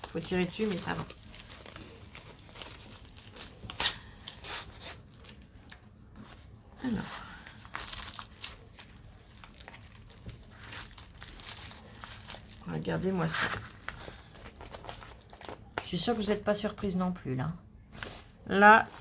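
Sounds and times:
plastic pouch crinkling: 0.0 - 5.8, 7.3 - 16.4.

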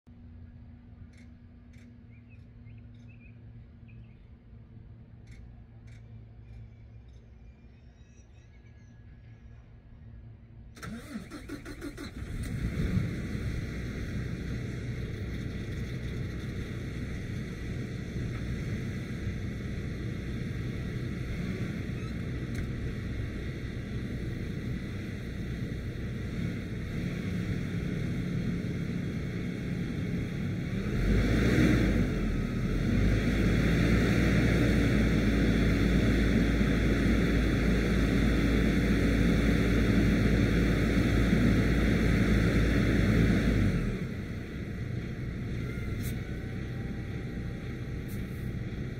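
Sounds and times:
diesel engine idling and revving: 10.6 - 48.9.

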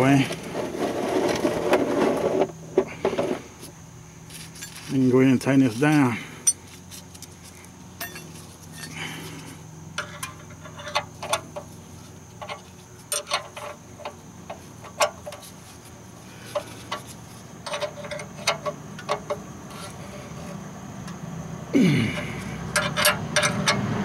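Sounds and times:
wrench clicking on drain plug: 22.8 - 23.8.

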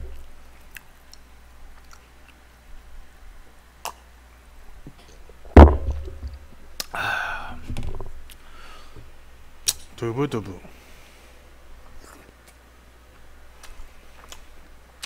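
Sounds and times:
heavy thump: 5.6 - 6.5.

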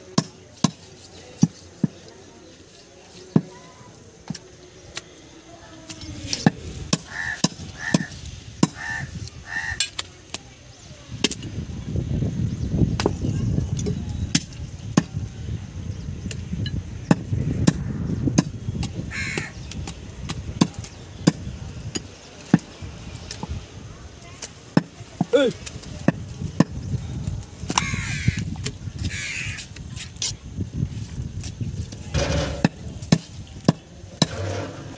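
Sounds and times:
bird calling: 7.0 - 10.0, 19.1 - 19.7, 27.8 - 29.6
low rumble: 17.3 - 19.0.

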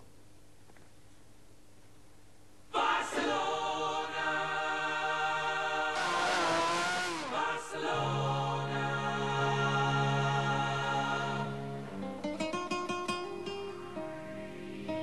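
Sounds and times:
choral music: 2.7 - 12.2, 13.9 - 15.0
race car passing at speed: 6.0 - 7.5.

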